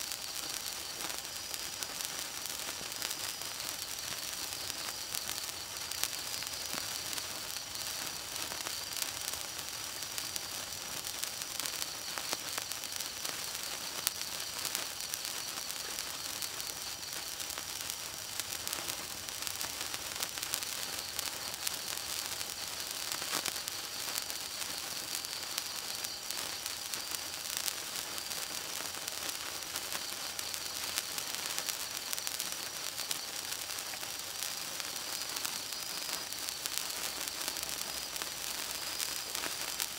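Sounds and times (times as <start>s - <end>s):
sparkler fizzing and crackling: 0.0s - 39.9s.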